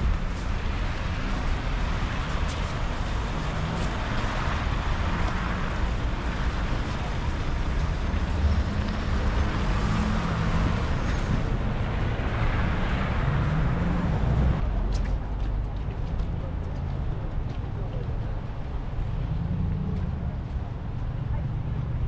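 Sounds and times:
cars passing: 0:00.0 - 0:22.0
low traffic rumble: 0:00.0 - 0:22.0.

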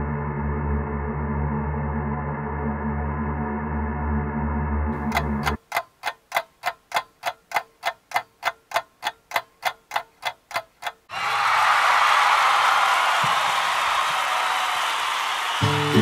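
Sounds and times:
low ambient music drone: 0:00.0 - 0:04.9
clock ticking: 0:05.0 - 0:11.1.

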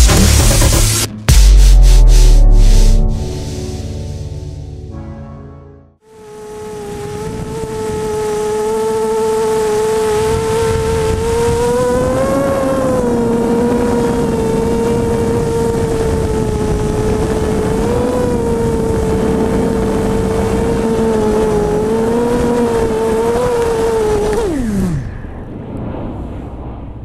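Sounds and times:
drone motors whining: 0:06.1 - 0:25.5.

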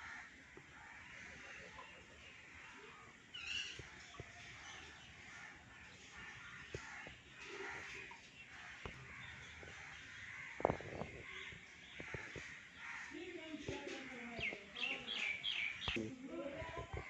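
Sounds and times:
crows cawing: 0:00.0 - 0:01.8, 0:05.3 - 0:13.3.

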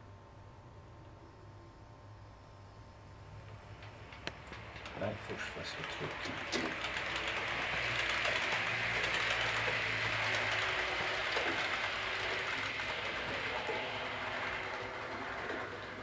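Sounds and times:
faint clicking over rails: 0:03.3 - 0:16.0
model train motor whirring: 0:03.8 - 0:16.0
low hum: 0:06.4 - 0:16.0.

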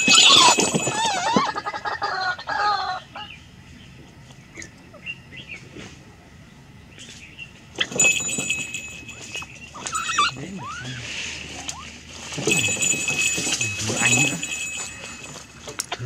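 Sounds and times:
waterhen calling: 0:09.0 - 0:12.4.

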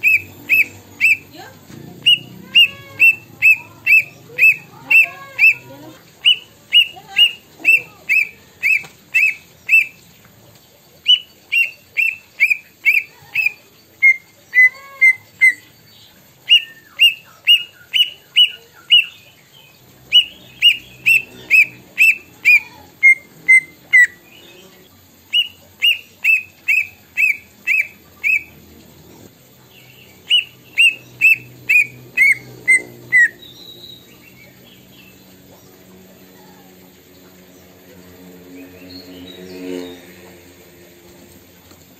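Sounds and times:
bird whistling: 0:00.0 - 0:10.0, 0:11.0 - 0:15.7, 0:16.5 - 0:19.2, 0:20.1 - 0:24.4, 0:25.3 - 0:28.6, 0:30.2 - 0:34.5.

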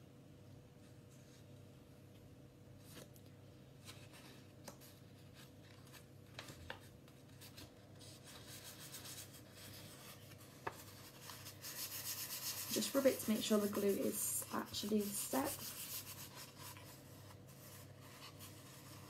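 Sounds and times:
paper rustling: 0:03.8 - 0:19.0.

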